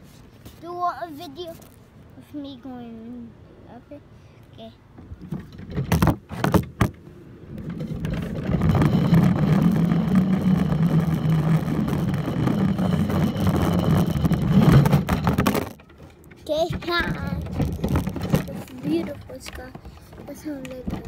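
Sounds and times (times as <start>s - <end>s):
plastic cart rumbling along track: 5.1s - 21.0s.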